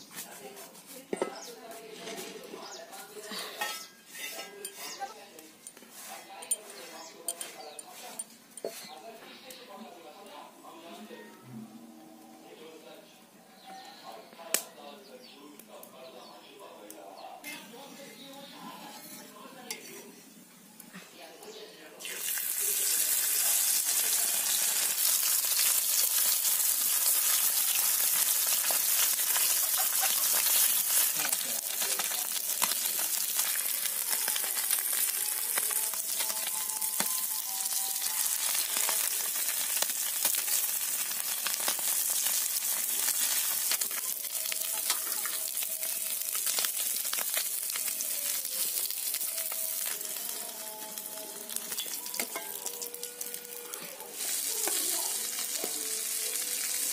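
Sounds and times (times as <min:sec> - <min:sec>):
metal spatula scraping pan: 0:03.4 - 0:05.1, 0:18.8 - 0:20.0
fish sizzling in hot oil: 0:22.0 - 0:56.9.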